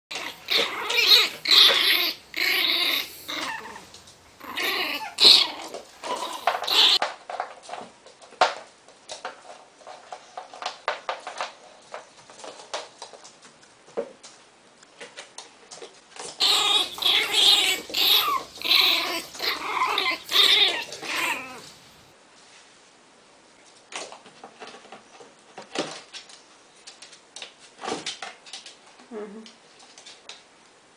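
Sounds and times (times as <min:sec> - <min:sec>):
dog snarling and growling: 0:00.1 - 0:07.0, 0:16.4 - 0:22.0.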